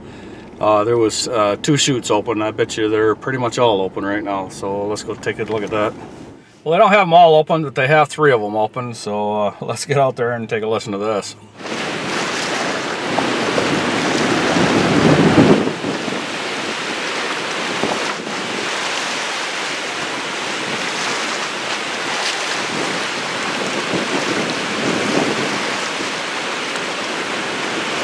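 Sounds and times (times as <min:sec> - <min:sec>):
water rushing through spillway: 0:11.6 - 0:28.0
wind buffeting microphone: 0:11.6 - 0:28.0.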